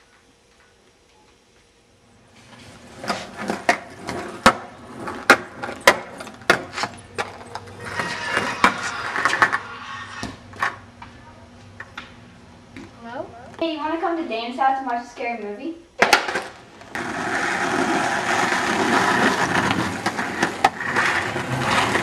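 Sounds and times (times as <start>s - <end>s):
skateboard wheels rolling on concrete: 0.0s - 12.1s, 16.0s - 22.0s
skateboard clacking on ground: 3.0s - 9.6s.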